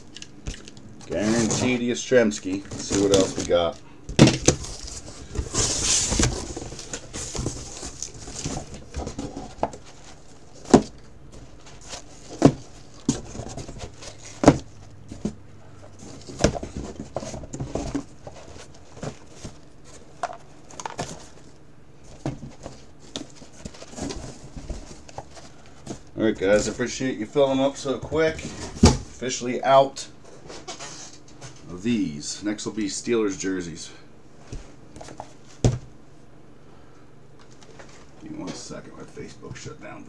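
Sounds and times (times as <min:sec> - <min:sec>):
cardboard rustle: 0:01.1 - 0:29.2
cardboard boxes tapping: 0:10.6 - 0:15.4, 0:16.0 - 0:19.6.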